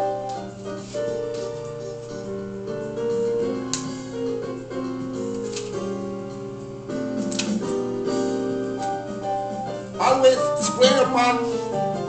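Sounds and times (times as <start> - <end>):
keyboard music: 0.0 - 12.0.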